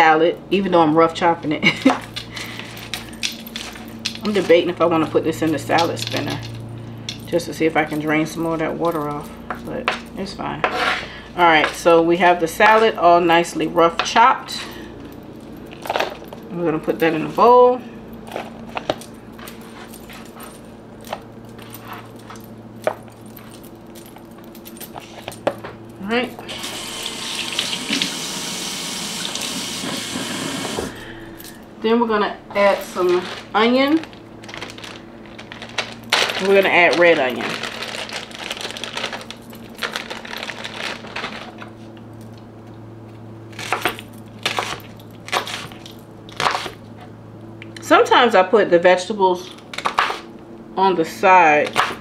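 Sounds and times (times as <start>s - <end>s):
faint steady hum: 0.0s - 52.0s
clicks and rustles of salad greens: 32.5s - 47.1s
plastic bag crinkling: 32.6s - 42.0s.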